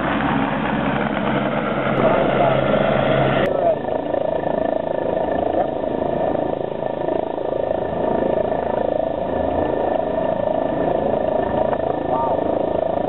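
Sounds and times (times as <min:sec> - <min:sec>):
helicopter idling: 0:00.0 - 0:13.0.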